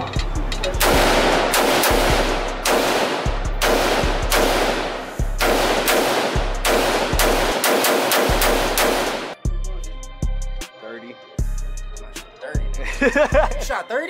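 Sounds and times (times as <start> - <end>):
rifle shots echoing indoors: 0.8 - 9.4.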